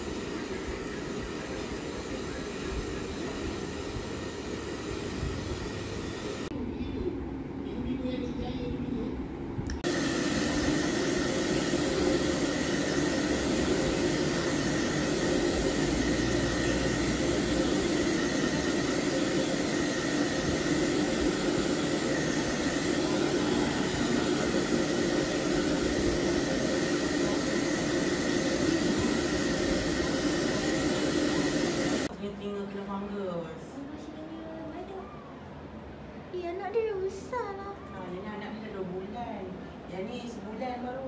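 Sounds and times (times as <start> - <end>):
hair dryer running: 0.0 - 6.5, 9.7 - 32.1.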